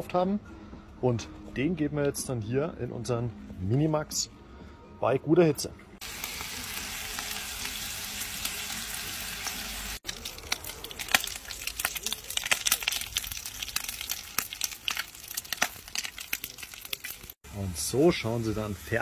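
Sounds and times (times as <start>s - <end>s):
bacon sizzling and popping in pan: 6.0s - 17.4s.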